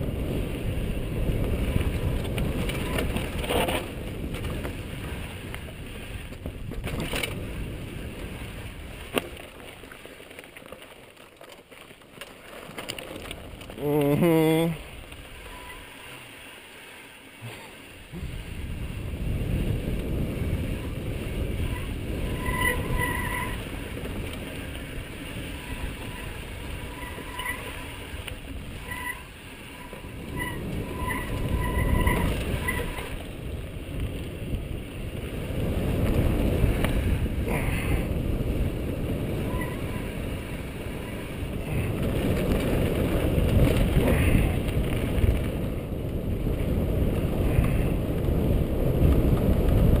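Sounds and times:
wind buffeting microphone: 0:00.0 - 0:09.7, 0:18.1 - 0:50.0
tyres rattling over dirt and stones: 0:01.2 - 0:16.8, 0:21.3 - 0:34.6, 0:39.3 - 0:47.8
short squeaks: 0:15.3 - 0:16.2, 0:21.7 - 0:23.6, 0:25.6 - 0:28.1, 0:28.8 - 0:33.2, 0:39.4 - 0:40.1.

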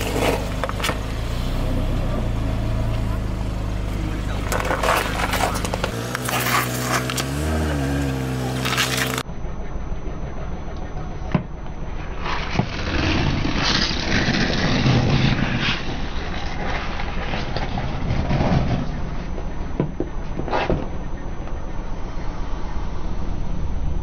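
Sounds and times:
low car sound: 0:00.0 - 0:24.0.

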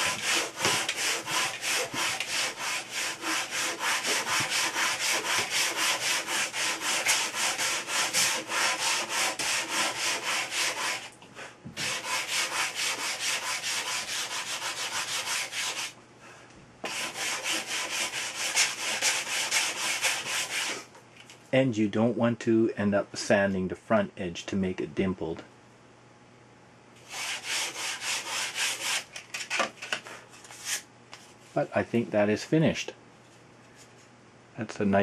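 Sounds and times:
sanding block rasping on wood: 0:00.0 - 0:11.1, 0:11.8 - 0:16.0, 0:16.8 - 0:20.8, 0:27.1 - 0:29.0.

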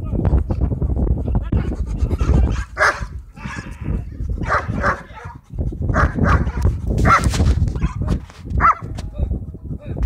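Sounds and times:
dog barking: 0:02.5 - 0:03.7, 0:04.4 - 0:08.9.

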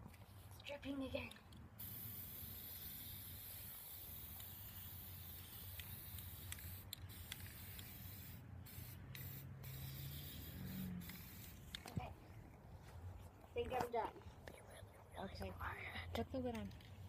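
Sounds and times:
spray paint can hissing: 0:01.8 - 0:11.9.

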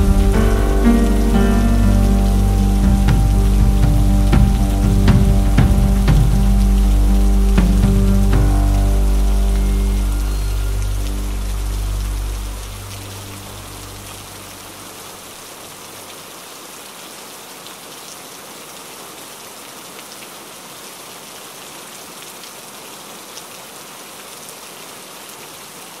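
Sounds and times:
background music: 0:00.0 - 0:14.8
heavy rain: 0:00.0 - 0:26.0.

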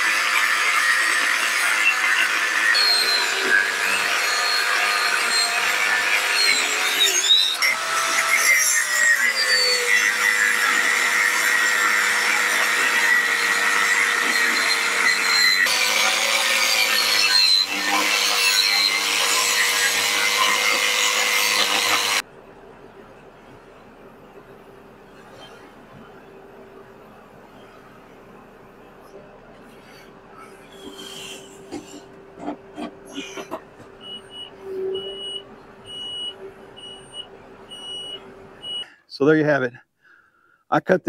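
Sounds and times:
angle grinder cutting metal: 0:00.0 - 0:22.2.

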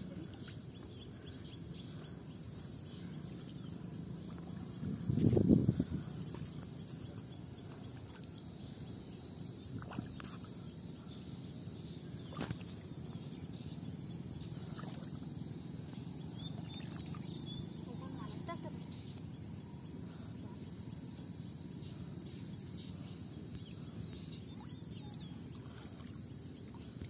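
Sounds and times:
insects droning: 0:00.0 - 0:27.0
shallow water swishing: 0:14.5 - 0:17.3, 0:24.5 - 0:27.0.

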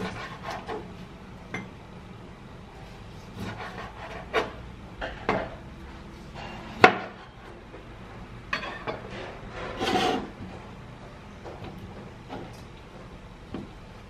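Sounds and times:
knife scrape: 0:00.0 - 0:00.9, 0:02.8 - 0:04.6, 0:06.2 - 0:07.4, 0:09.1 - 0:10.4.

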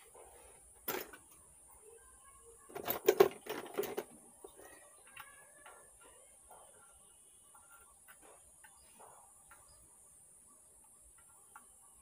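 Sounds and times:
small parts and tools clattering: 0:00.0 - 0:01.6, 0:02.5 - 0:09.8.

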